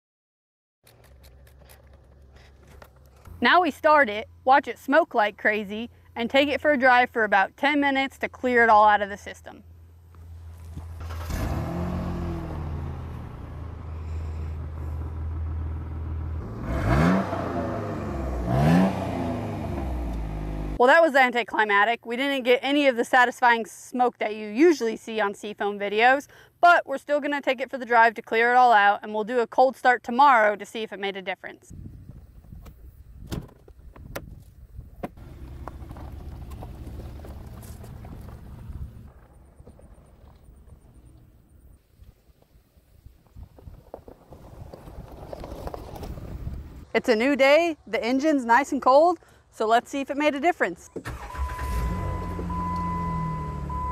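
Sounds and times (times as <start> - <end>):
car engine starting and idling: 9.7 - 20.8, 35.0 - 41.8, 50.9 - 53.9
engine revving: 10.7 - 20.8, 51.1 - 53.9.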